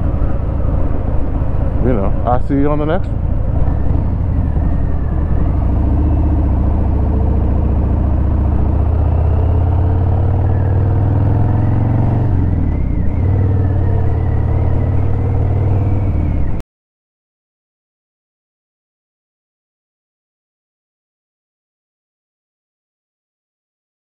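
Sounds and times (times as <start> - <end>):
motorcycle engine rumbling: 0.0 - 16.6.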